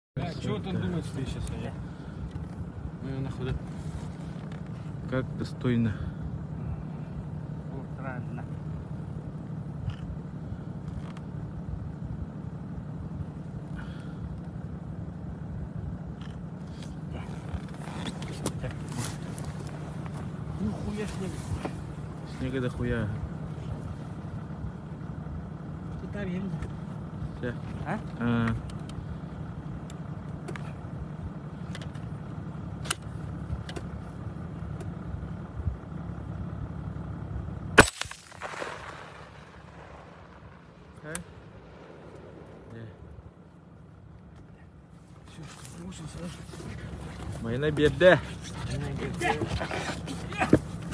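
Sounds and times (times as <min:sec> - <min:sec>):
vehicle engine idling: 0:00.2 - 0:50.9
faint clicks and rustles: 0:03.4 - 0:05.1, 0:15.9 - 0:22.8
rifle shot: 0:37.8 - 0:40.4.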